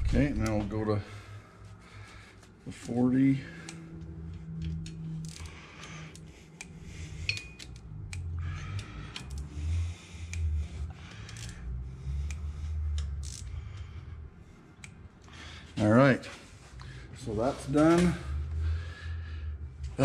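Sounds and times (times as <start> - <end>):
low rumble: 0.0 - 20.0
torque wrench ratcheting and clicking: 4.6 - 9.6, 10.3 - 11.6, 12.2 - 13.8.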